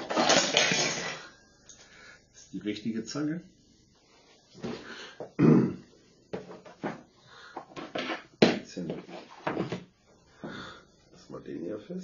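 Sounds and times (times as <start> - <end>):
low throat sound: 5.4 - 5.9.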